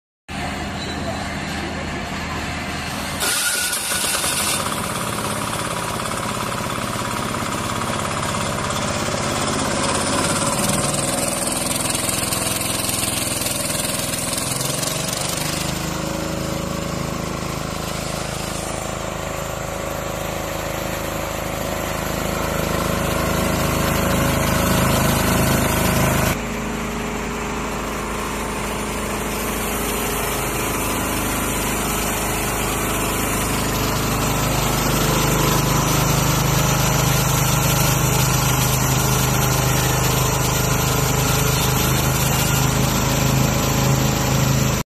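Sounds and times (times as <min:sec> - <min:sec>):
diesel engine running: 0:00.3 - 0:44.8
band saw blade cutting log: 0:03.0 - 0:26.4, 0:28.5 - 0:44.8.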